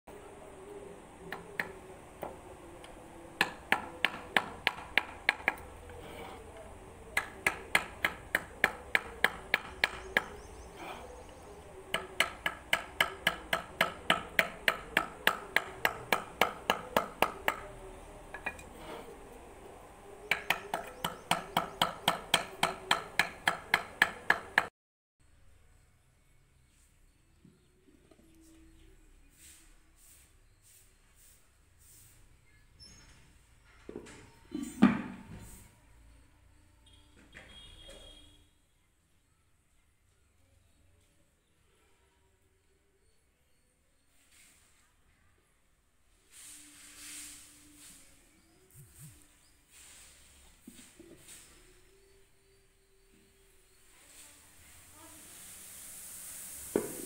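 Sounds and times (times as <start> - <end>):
wooden mallet tapping chisel: 1.3 - 6.4, 7.1 - 10.7, 11.9 - 18.8, 20.3 - 24.7.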